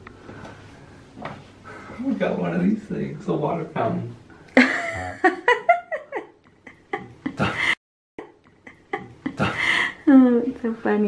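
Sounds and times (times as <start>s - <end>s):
people laughing and giggling: 4.6s - 7.8s, 8.5s - 9.8s.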